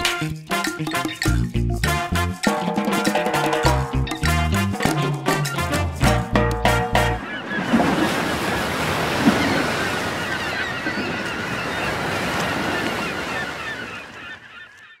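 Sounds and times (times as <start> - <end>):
waves and surf: 6.8 - 14.9.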